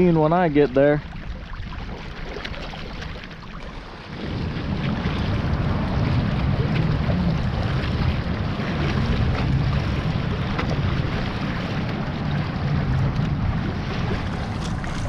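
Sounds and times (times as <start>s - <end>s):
water splashing along hull: 0.0s - 15.0s
wind rumbling on microphone: 0.0s - 15.0s.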